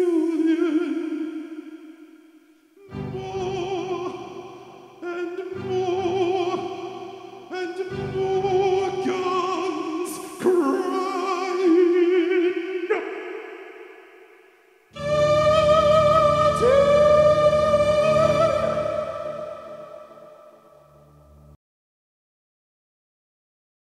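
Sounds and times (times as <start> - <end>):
operatic male voice singing: 0.0 - 2.0, 2.8 - 14.0, 15.0 - 20.8.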